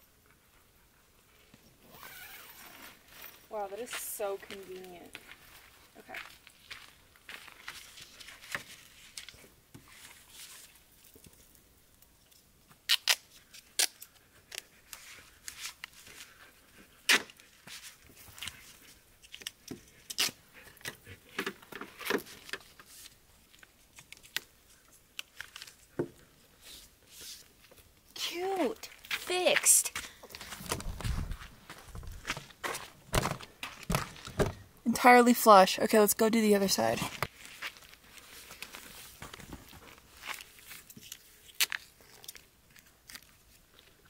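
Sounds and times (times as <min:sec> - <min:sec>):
tape ticking and rustling: 0:06.4 - 0:34.6, 0:37.1 - 0:44.0.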